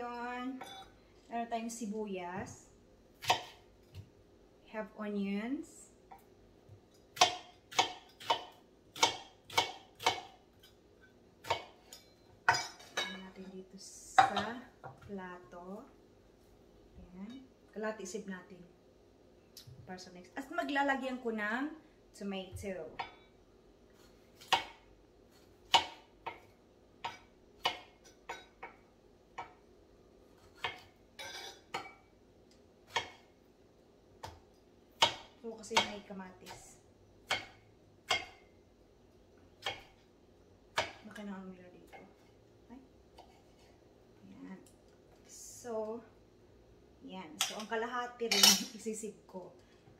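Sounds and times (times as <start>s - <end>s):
knife chopping on cutting board: 3.2s - 4.1s, 7.2s - 10.3s, 24.4s - 24.8s, 25.7s - 26.4s, 27.0s - 28.0s, 30.4s - 30.9s, 35.0s - 36.6s, 37.3s - 38.4s, 39.6s - 39.9s.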